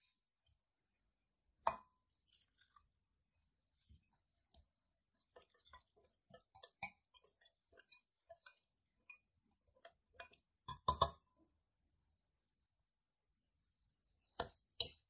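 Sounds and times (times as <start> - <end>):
whisk clinking against glass bowl: 5.4 - 11.2.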